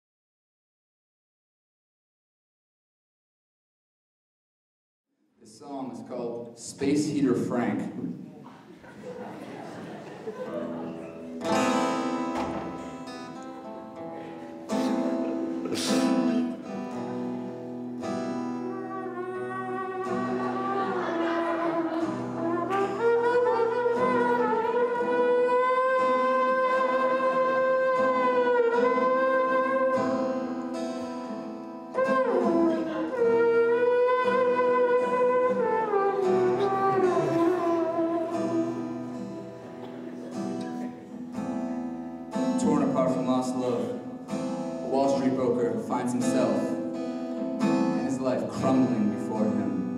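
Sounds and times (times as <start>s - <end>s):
acoustic guitar: 5.4s - 49.9s
sliding lead melody: 11.0s - 48.2s.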